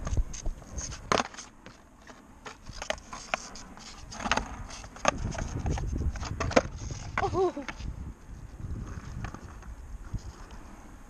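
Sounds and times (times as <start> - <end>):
skateboard clacks: 0.0 - 7.8
skateboard wheel rumble: 0.0 - 11.0.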